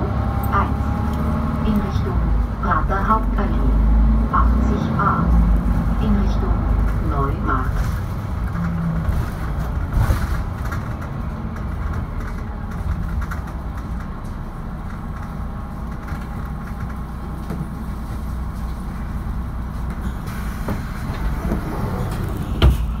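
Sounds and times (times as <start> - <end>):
bus engine rumble: 0.0 - 23.0.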